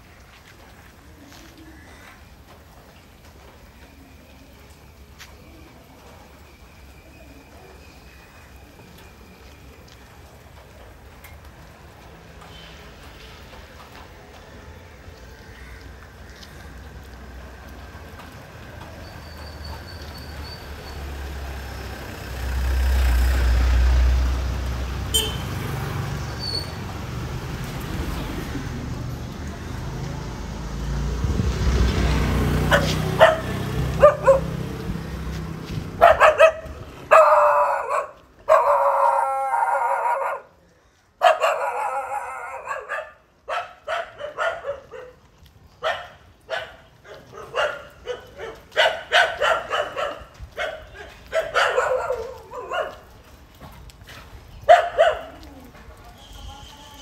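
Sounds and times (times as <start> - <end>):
dog barking and howling: 32.7 - 34.5, 36.0 - 40.6, 41.2 - 45.2, 45.8 - 53.1.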